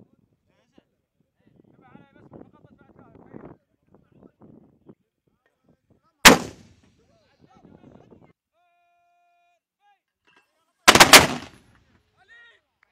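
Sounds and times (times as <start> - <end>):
mortar blast: 6.3 - 6.7, 10.9 - 11.6.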